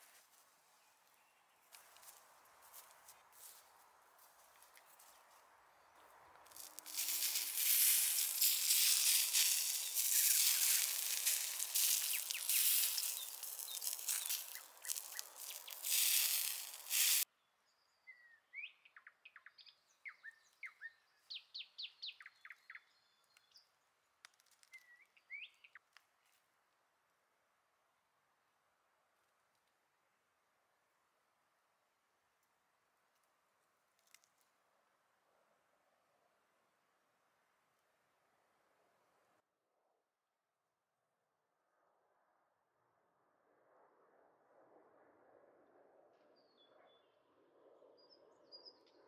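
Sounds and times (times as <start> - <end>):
small birds chirping: 4.6 - 23.8, 24.5 - 25.9
crackling hiss with clicks: 6.5 - 17.3.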